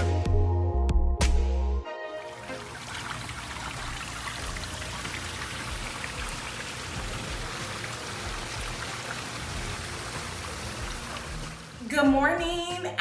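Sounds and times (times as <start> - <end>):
water hissing and pattering: 2.3 - 11.8.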